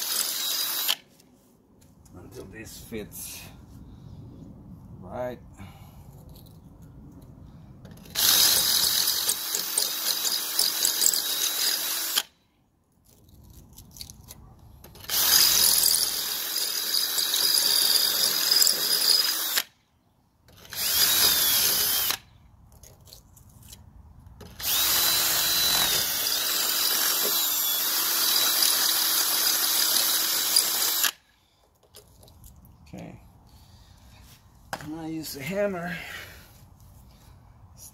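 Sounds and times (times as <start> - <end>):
power drill boring into brick: 0.0 - 1.0, 7.9 - 12.3, 15.0 - 19.7, 20.5 - 22.2, 24.4 - 31.2.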